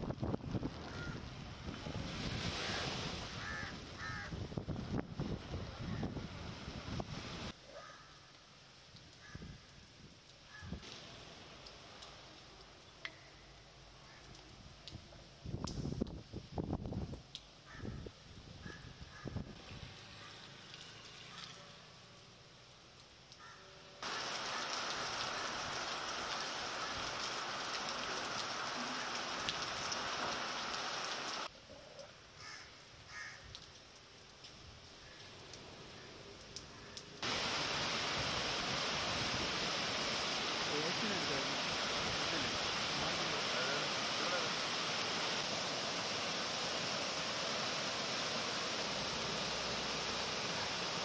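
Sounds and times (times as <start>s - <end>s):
outdoor weather hiss: 0.0s - 51.0s
heavy rain pouring: 24.0s - 31.5s, 36.4s - 51.0s.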